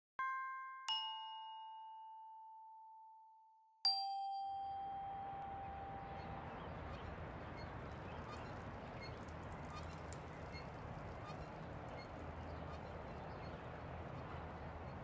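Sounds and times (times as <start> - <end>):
bell-like chime tones: 3.9 - 6.2
steady background noise: 5.2 - 15.0.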